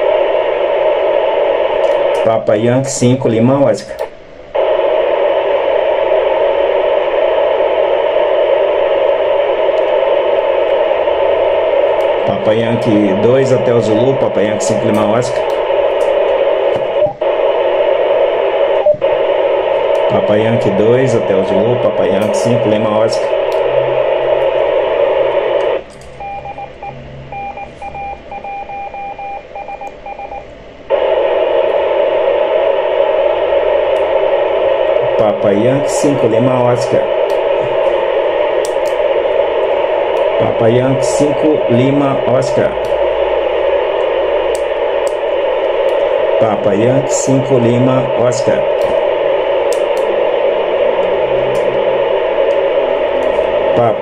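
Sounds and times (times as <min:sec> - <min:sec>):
radio static hiss: 0:00.0 - 0:54.0
morse code tone beeps: 0:26.2 - 0:30.5.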